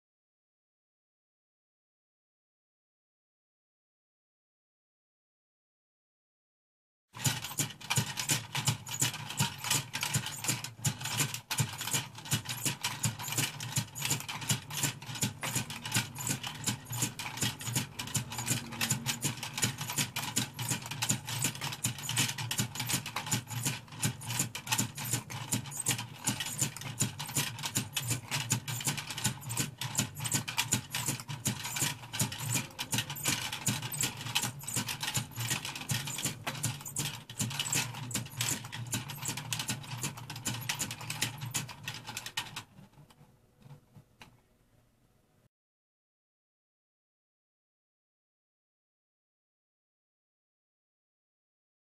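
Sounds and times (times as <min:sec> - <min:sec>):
clockwork toy clattering clicks: 0:07.2 - 0:42.7.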